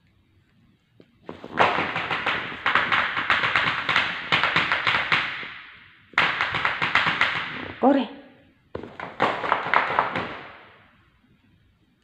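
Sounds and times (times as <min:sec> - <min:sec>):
rapid tapping on tiled floor: 0:01.2 - 0:07.8, 0:08.7 - 0:11.1.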